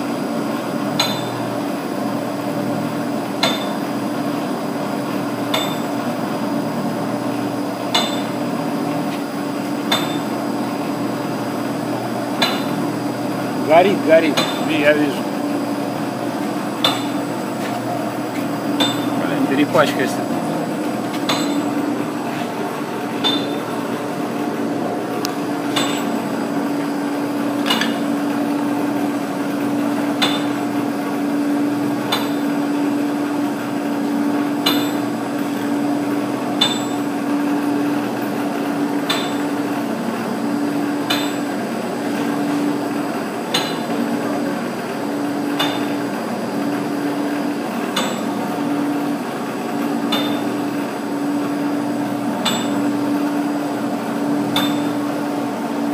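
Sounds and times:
heat gun running: 0.0 - 55.9
machine hum: 0.0 - 55.9
pipe turning on rollers click: 27.6 - 28.1, 47.9 - 48.4.

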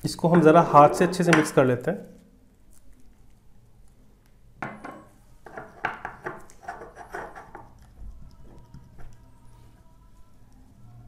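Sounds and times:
knock on plastic bowl: 1.2 - 1.6
finger scraping plastic bowl: 6.5 - 7.8.

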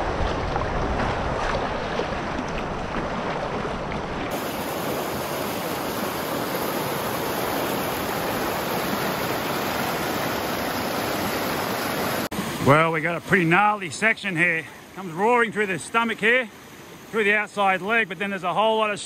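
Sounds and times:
river rapids rushing: 4.3 - 18.6.

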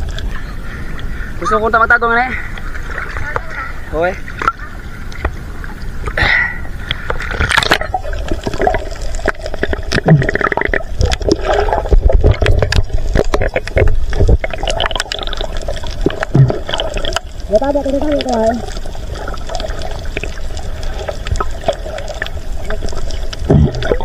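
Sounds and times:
muffled underwater rumble: 0.0 - 24.0
seawater sloshing and gurgling: 0.0 - 24.0
sharp underwater clicks: 6.8 - 24.0.

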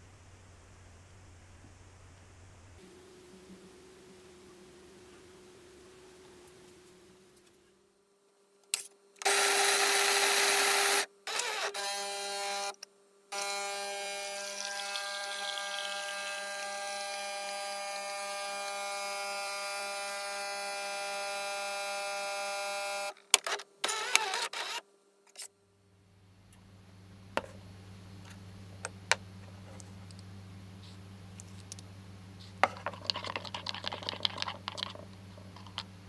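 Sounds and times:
coffee grinder grinding: 9.2 - 12.7, 13.3 - 23.2, 32.5 - 35.9
coffee machine pump humming: 13.3 - 23.0, 27.3 - 36.0
coffee pouring: 14.3 - 16.9, 32.6 - 35.9.

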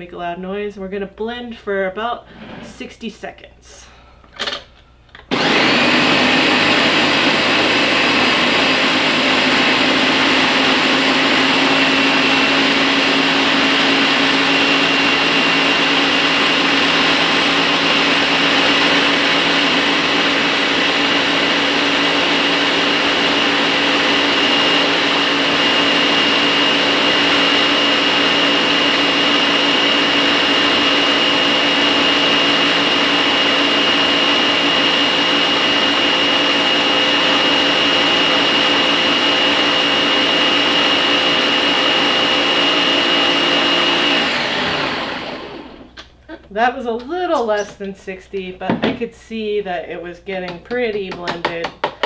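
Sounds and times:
blender running with whine: 5.3 - 46.0.

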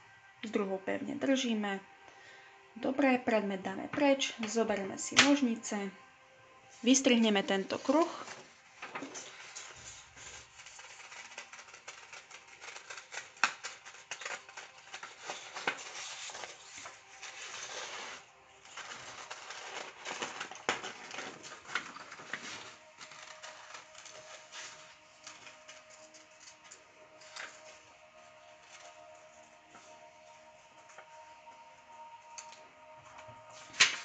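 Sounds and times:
paper rustling: 7.7 - 31.4, 33.2 - 34.0
scissors snipping paper: 8.9 - 27.6.

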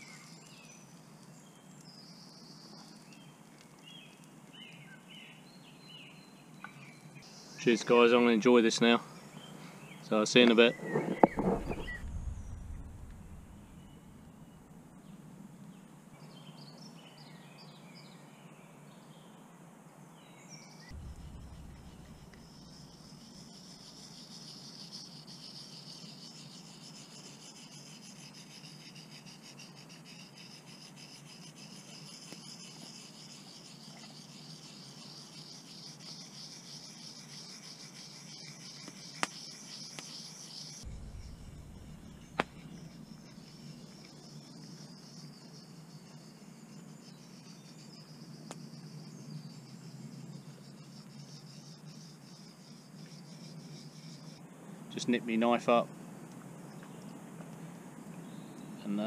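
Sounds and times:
insects chirring: 0.0 - 15.1, 20.1 - 59.0
bird calls: 8.8 - 14.7, 20.3 - 45.7.

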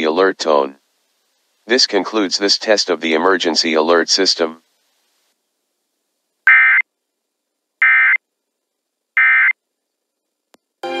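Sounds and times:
warbling digital data tones: 6.5 - 6.8, 7.8 - 8.2, 9.2 - 9.6
programme audio: 6.5 - 6.9, 7.8 - 8.3, 9.2 - 9.6.

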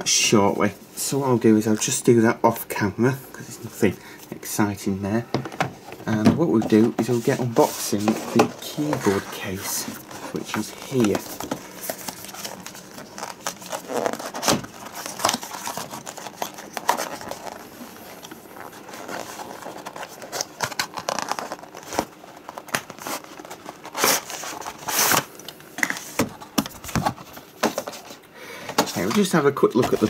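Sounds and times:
cardboard box being opened: 6.0 - 25.3.

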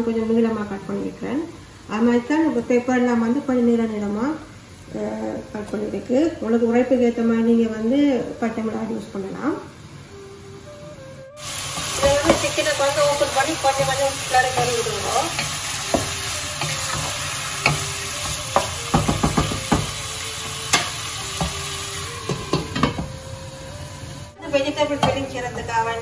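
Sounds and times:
food sizzling in a saucepan: 0.2 - 26.0
spatula knocking against pan: 15.4 - 20.0.

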